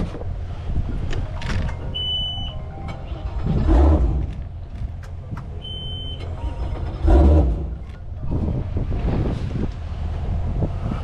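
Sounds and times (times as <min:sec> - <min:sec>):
low vehicle rumble: 0:00.0 - 0:11.0
high electronic beep: 0:01.8 - 0:03.2, 0:05.6 - 0:06.7.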